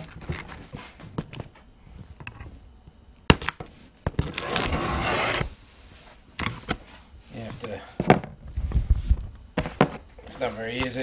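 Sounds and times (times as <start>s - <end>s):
cardboard scraping: 4.2s - 5.6s.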